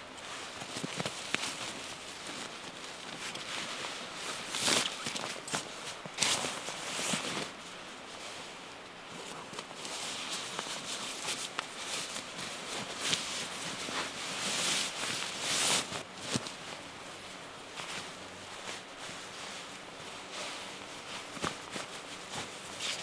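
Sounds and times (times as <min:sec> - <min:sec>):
sleeping bag nylon rustling: 0:00.0 - 0:23.0.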